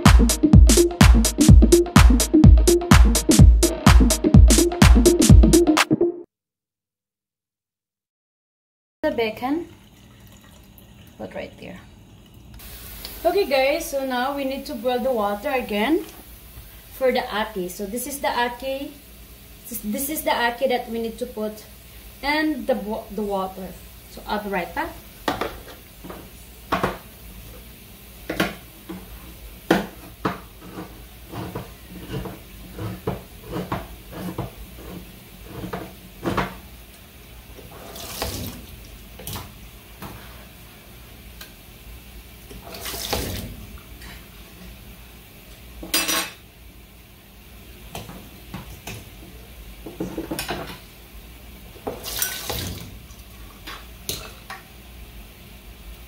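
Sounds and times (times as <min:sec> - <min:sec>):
tap water rushing: 0:28.2 - 0:32.4, 0:37.5 - 0:40.2, 0:42.5 - 0:43.9, 0:51.8 - 0:53.8.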